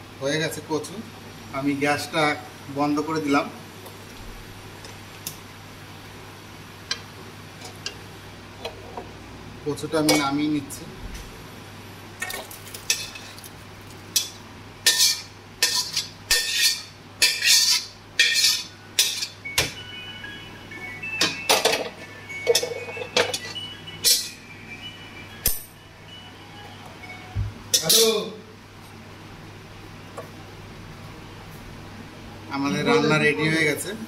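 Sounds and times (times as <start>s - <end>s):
metal spoon scraping pots: 14.9s - 19.3s.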